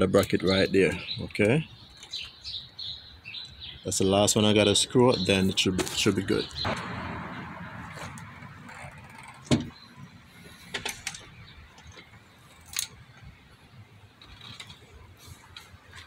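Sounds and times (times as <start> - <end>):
engine parts clicking and knocking: 6.7 - 13.4, 14.1 - 16.0.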